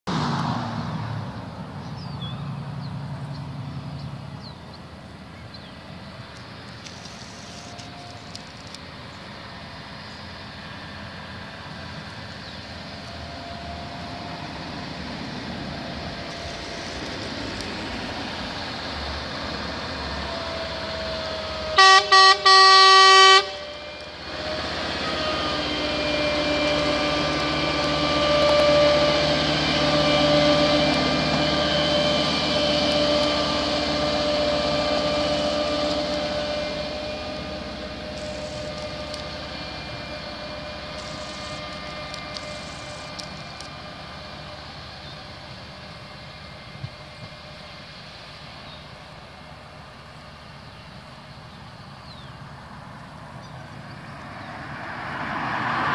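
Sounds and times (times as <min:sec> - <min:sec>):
truck engine on rails: 0:00.1 - 0:55.9
truck horn toots and blast: 0:21.7 - 0:24.1.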